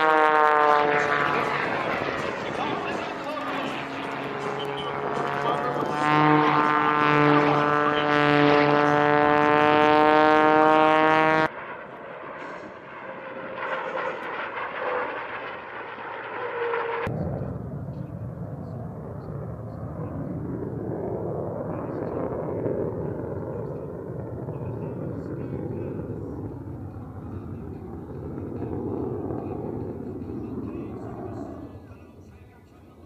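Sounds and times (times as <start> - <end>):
jet rumble: 0.0 - 33.0
propeller plane engine droning: 0.0 - 33.0.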